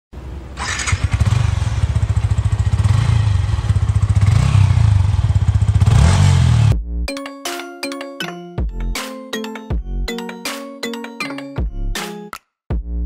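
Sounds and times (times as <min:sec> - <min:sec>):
motorcycle engine running: 0:00.6 - 0:06.8.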